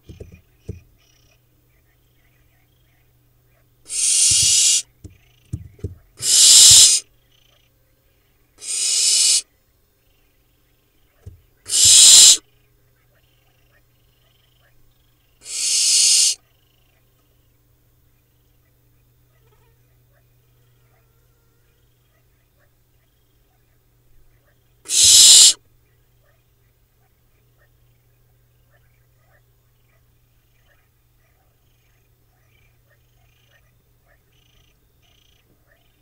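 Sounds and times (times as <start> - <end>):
low electrical hum: 0.0 - 8.6, 16.4 - 24.9, 25.6 - 36.0
owl nestlings hissing: 3.9 - 5.0, 6.2 - 7.1, 8.6 - 9.5, 11.7 - 12.4, 15.4 - 16.4, 24.9 - 25.6.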